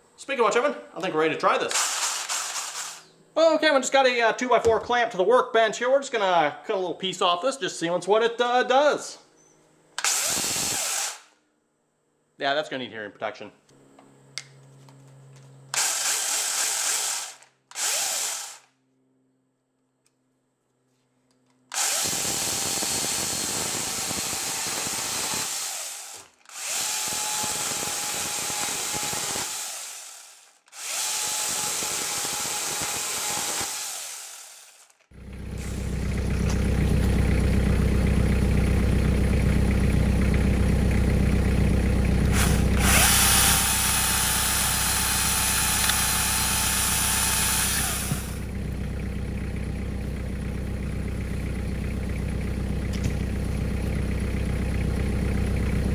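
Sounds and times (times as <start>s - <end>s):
angle grinder chainsaw cutting wood: 10.0s - 11.3s, 15.8s - 18.7s, 21.7s - 36.6s, 42.2s - 48.5s
low machine hum: 35.1s - 55.9s.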